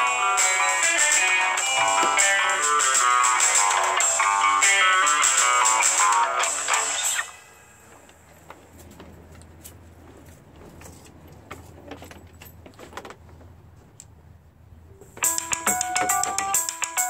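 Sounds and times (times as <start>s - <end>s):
electronic beeping melody: 15.3s - 17.0s.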